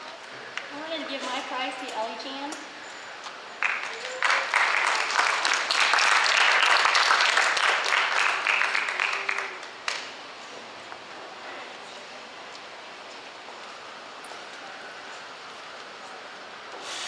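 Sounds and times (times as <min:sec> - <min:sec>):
crowd applause: 0:03.6 - 0:10.4.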